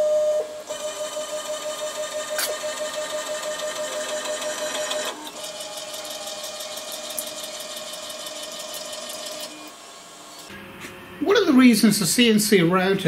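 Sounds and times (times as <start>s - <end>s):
stepper motors whining: 0.4s - 10.5s.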